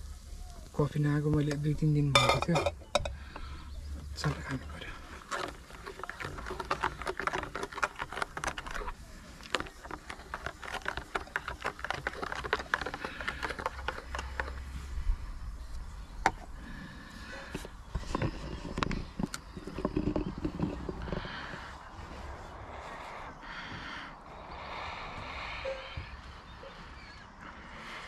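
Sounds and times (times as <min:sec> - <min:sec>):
small objects clicking and rustling: 0:04.2 - 0:14.8, 0:17.4 - 0:21.8.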